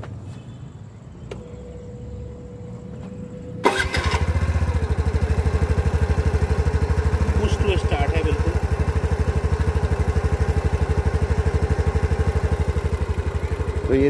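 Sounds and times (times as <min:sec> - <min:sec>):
scooter engine idling: 0:03.6 - 0:14.0.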